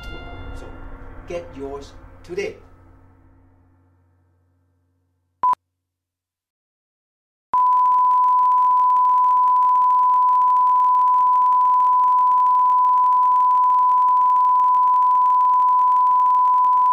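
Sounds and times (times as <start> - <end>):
steady electronic test tone: 7.6 - 16.9.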